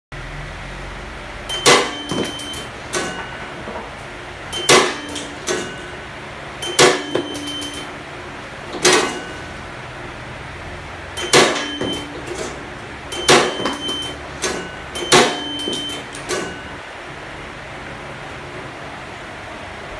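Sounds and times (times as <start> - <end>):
low machine hum: 0.1 - 19.9
metal reject flap clacking: 1.5 - 4.0, 4.6 - 5.9, 8.7 - 9.5, 11.2 - 16.6.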